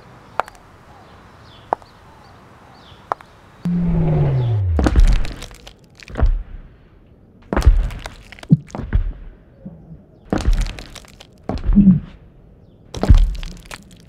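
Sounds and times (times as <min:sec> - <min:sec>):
heavy stomping footsteps: 0:13.0 - 0:13.8.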